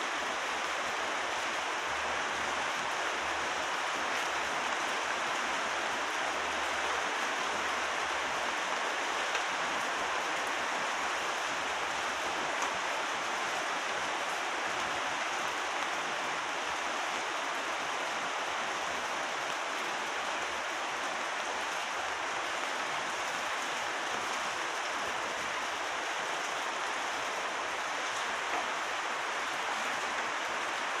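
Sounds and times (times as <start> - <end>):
steady rain falling: 0.0 - 31.0.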